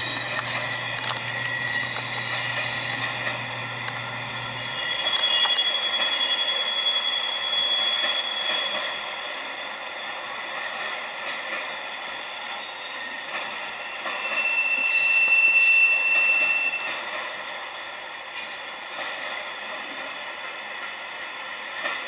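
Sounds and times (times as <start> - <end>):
wheel squeal: 0.0 - 10.4, 12.2 - 17.2
train wheels clattering on rails: 4.8 - 9.4, 10.5 - 11.9, 13.2 - 15.4, 16.0 - 17.5, 18.2 - 21.0, 21.7 - 22.0.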